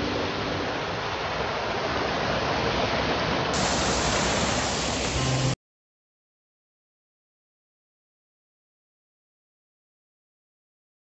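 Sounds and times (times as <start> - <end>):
waterfall rushing and splashing: 0.0 - 5.6.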